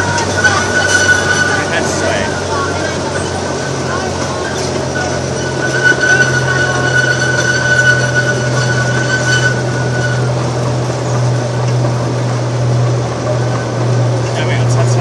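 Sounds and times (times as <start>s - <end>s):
high squeal: 0.0s - 11.9s
train ride rumble: 0.0s - 15.0s.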